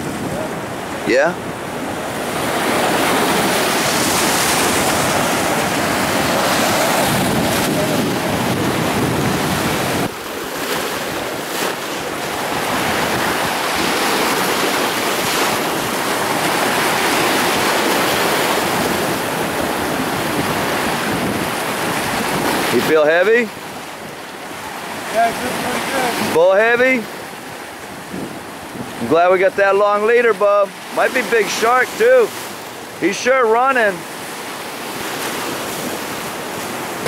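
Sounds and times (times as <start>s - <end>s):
wind buffeting microphone: 0.0s - 23.0s, 27.3s - 29.3s
surf breaking on rocks: 0.0s - 37.0s.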